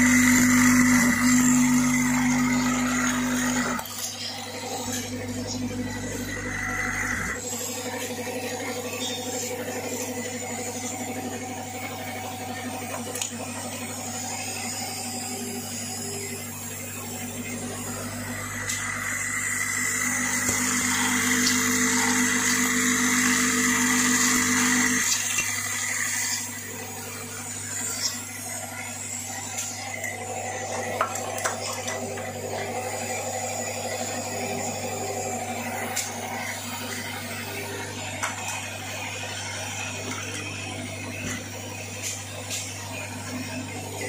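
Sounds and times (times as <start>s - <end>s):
louder machine tone: 0.0s - 44.0s
vibratory feeder buzzing hum: 0.0s - 44.0s.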